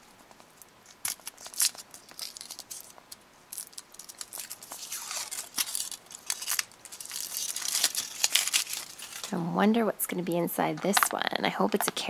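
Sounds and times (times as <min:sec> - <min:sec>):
foil wrapper crinkling and tearing: 0:00.8 - 0:09.4.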